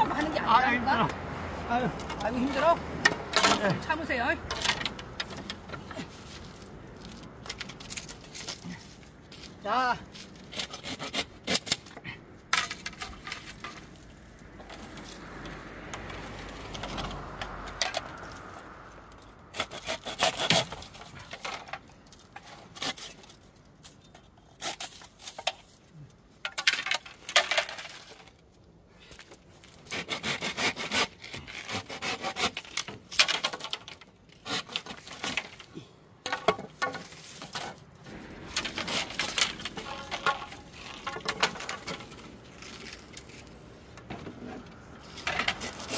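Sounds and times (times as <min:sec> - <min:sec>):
hand saw cutting bamboo: 0:10.3 - 0:13.6, 0:19.5 - 0:21.8, 0:22.4 - 0:23.4, 0:24.4 - 0:25.6, 0:29.6 - 0:37.8, 0:38.5 - 0:43.5, 0:44.4 - 0:45.9.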